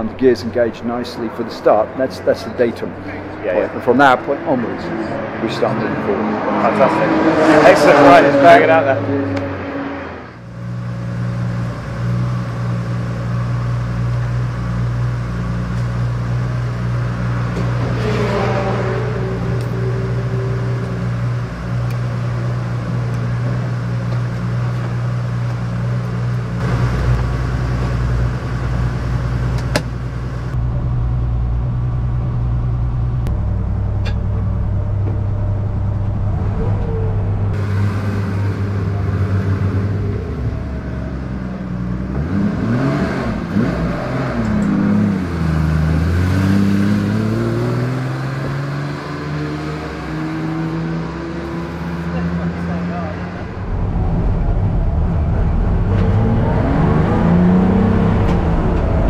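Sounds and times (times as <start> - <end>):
car engine idling: 19.1 - 42.3.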